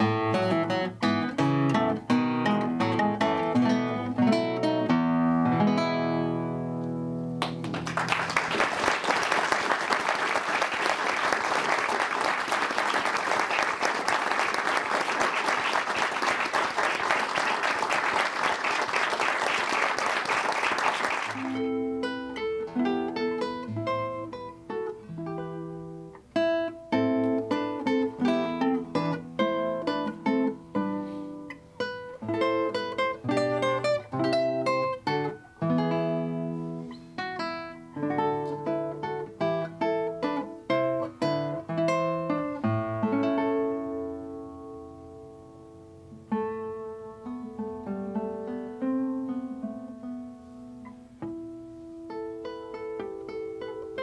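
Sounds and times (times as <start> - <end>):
solo classical guitar: 0.0 - 8.5, 21.3 - 54.0
audience applauding: 7.4 - 21.6.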